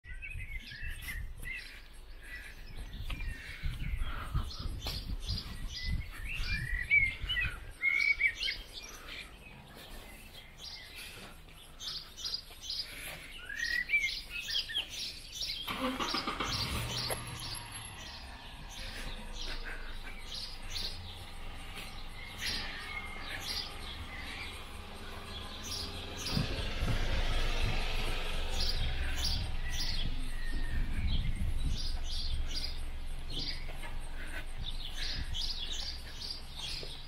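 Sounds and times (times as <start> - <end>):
songbirds singing and chirping: 0.0 - 37.0
low rumble: 16.5 - 37.0.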